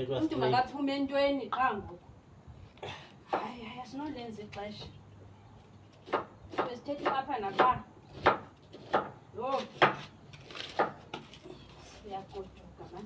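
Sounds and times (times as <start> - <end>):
sharp wooden knocks: 6.0 - 10.0, 10.7 - 11.2.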